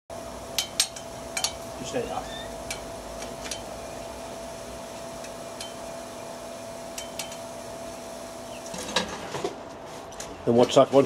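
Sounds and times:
tongs clinking on metal: 0.6s - 1.6s, 5.2s - 5.8s, 7.0s - 7.5s.

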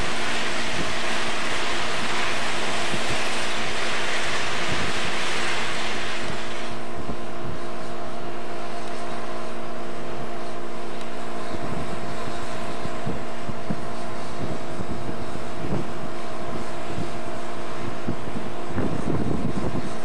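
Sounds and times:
hiss: 0.0s - 6.8s
railway machine engine running: 0.0s - 20.0s.

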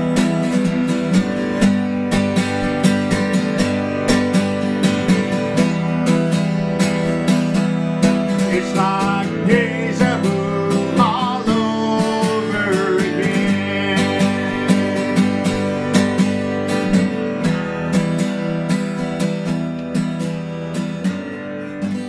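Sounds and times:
acoustic guitar strumming: 0.0s - 22.0s
man singing: 8.3s - 15.9s.

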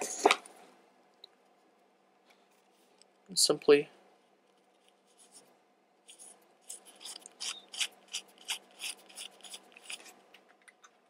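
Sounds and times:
rhythmic scraping and rubbing: 6.1s - 10.2s.

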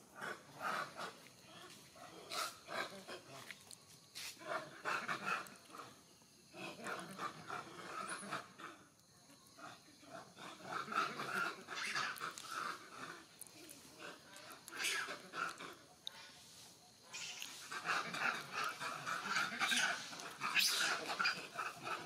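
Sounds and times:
monkeys calling: 4.4s - 8.9s, 9.6s - 22.0s.

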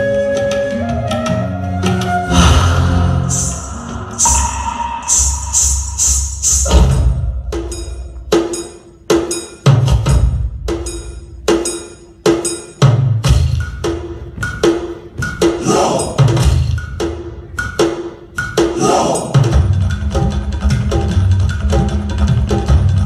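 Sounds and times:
sharp metallic drum strokes: 2.3s - 9.8s
deep drum beats: 2.3s - 11.6s.

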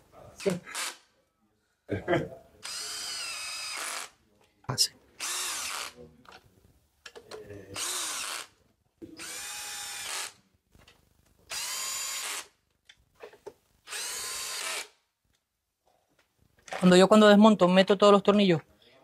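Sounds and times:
electric screwdriver motor: 0.4s - 1.0s, 2.6s - 4.1s, 5.2s - 6.0s, 7.8s - 8.5s, 9.2s - 10.4s, 11.5s - 12.5s, 13.9s - 15.0s.

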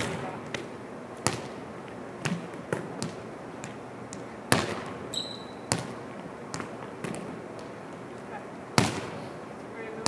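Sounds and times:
high squeak: 5.1s - 5.6s.

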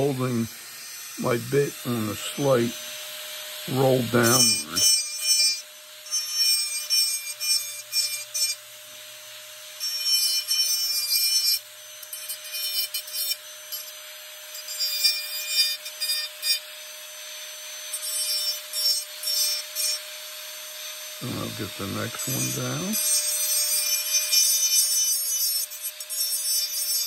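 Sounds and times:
rotary tool motor whining: 0.0s - 27.0s
scratchy grinding on wood: 21.2s - 23.3s.

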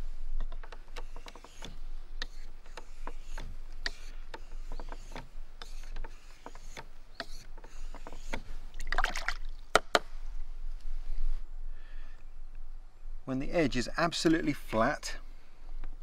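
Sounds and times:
water splashing: 8.7s - 9.6s.

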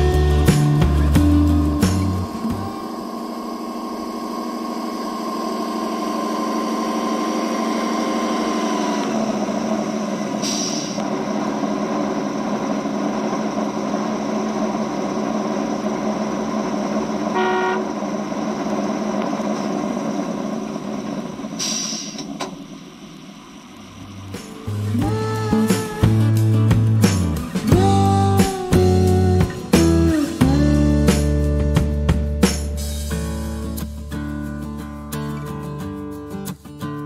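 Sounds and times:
simulated diesel engine through speaker: 0.0s - 37.0s
brief hisses: 10.4s - 11.0s, 21.6s - 22.3s
short horn toot: 17.3s - 18.0s.

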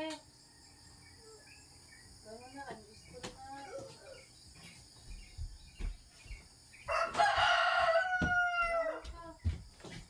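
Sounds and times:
birds chirping: 0.0s - 10.0s
rooster crowing: 6.9s - 9.1s.

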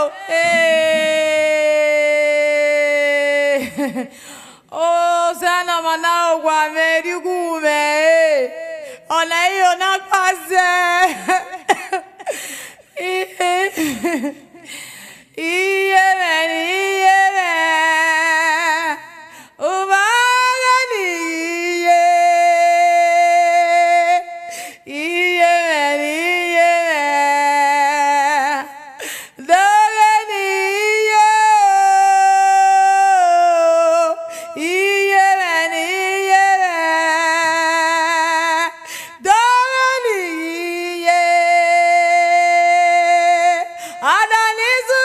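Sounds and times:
woman singing high held notes: 0.0s - 2.9s
woman singing unaccompanied: 0.0s - 14.6s, 15.4s - 45.0s.

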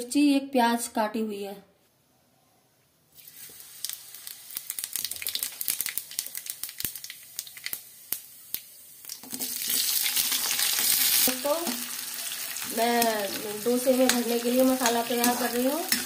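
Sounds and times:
seeds crackling in hot oil: 3.2s - 16.0s
vegetables sizzling in oil: 3.2s - 16.0s.

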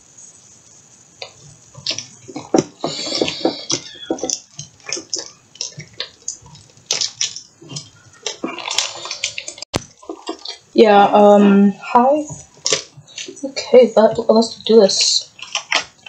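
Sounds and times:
packaging crinkling and tearing: 1.2s - 10.6s, 15.2s - 16.0s.

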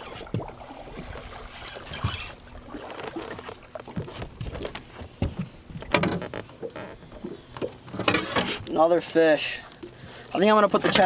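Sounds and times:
fish splashing: 0.0s - 4.8s
knocks against boat: 3.9s - 8.6s.

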